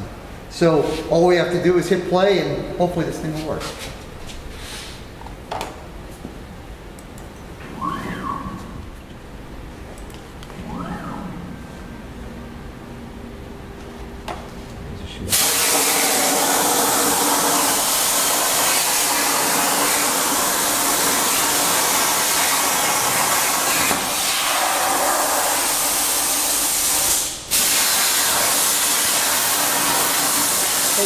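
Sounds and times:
plasma cutter hissing: 0:15.3 - 0:31.0.

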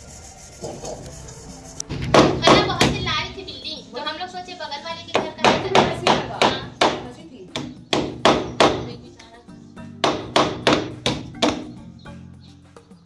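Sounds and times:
hammer knocking on plastic pipe: 0:01.9 - 0:03.1, 0:05.1 - 0:09.0, 0:10.0 - 0:11.8.

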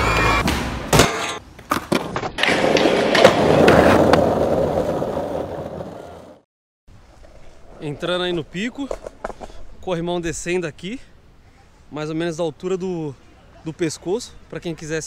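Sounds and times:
skateboard pops and landings: 0:00.2 - 0:06.4
skateboard wheels rolling: 0:01.4 - 0:10.1.

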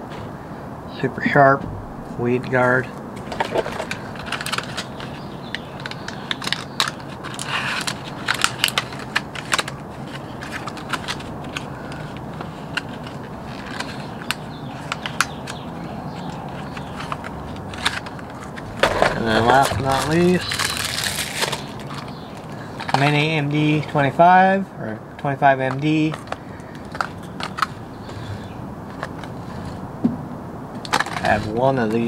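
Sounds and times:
plastic package crinkling: 0:17.0 - 0:23.0.

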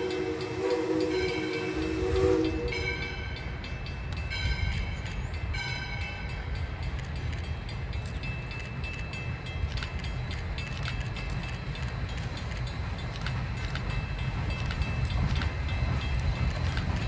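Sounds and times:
locomotive bell ringing: 0:00.0 - 0:17.0
steam locomotive chime whistle: 0:00.0 - 0:17.0
train rumbling: 0:00.0 - 0:17.0.

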